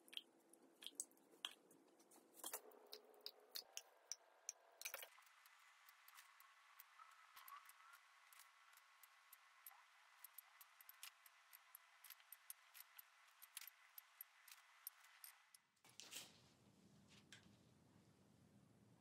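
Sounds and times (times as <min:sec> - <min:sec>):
faint small ticks: 0:02.5 - 0:15.7.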